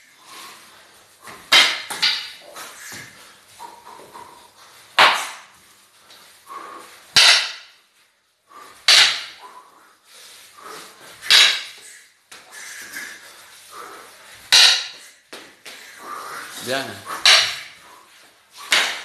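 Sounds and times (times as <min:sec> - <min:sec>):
sticks cracking strikes: 0:01.3 - 0:03.0, 0:05.0 - 0:05.5, 0:07.1 - 0:07.7, 0:08.9 - 0:09.4, 0:11.2 - 0:11.8, 0:14.5 - 0:15.1, 0:17.1 - 0:17.8, 0:18.6 - 0:19.0.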